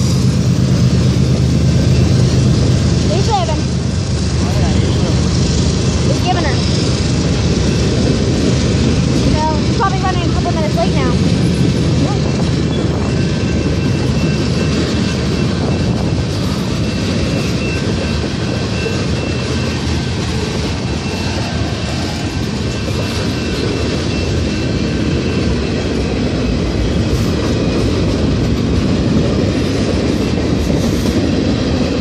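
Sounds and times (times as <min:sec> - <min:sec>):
freight train wheels rumbling on rails: 0:00.0 - 0:32.0.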